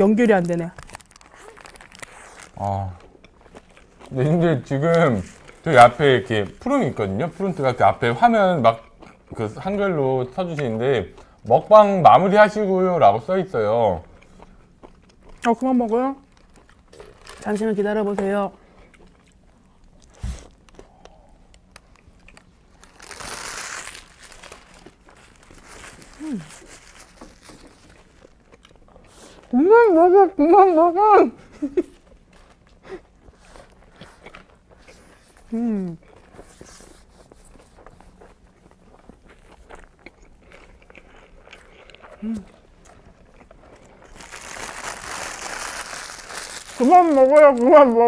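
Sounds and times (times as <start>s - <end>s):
paper wrapper crinkling: 0.0s - 2.7s, 16.2s - 17.8s, 21.7s - 28.4s, 43.9s - 48.0s
chewing with mouth clicks: 1.0s - 5.6s, 8.7s - 9.4s, 14.0s - 15.6s, 24.8s - 29.5s, 31.9s - 44.3s.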